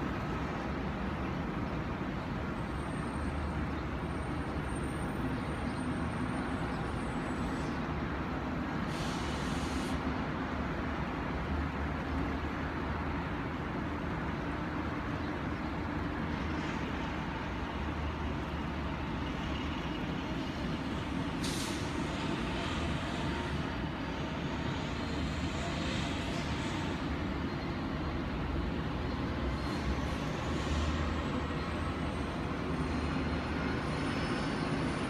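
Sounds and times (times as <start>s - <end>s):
city traffic rumble: 0.0s - 35.0s
brief hiss: 8.9s - 10.0s
hiss: 8.9s - 10.0s, 21.4s - 23.3s.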